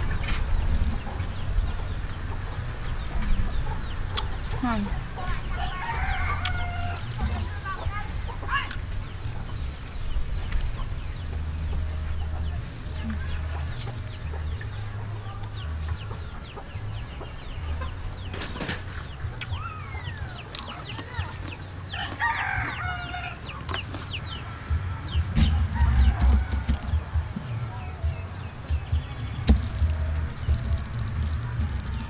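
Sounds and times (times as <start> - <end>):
chickens clucking: 0.0 - 32.0
rooster crowing: 5.6 - 7.2, 22.0 - 23.5, 25.5 - 27.2.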